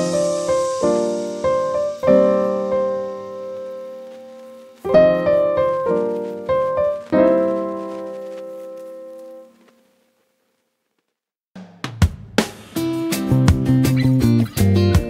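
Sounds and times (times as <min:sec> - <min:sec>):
piano chords: 0:00.0 - 0:09.7.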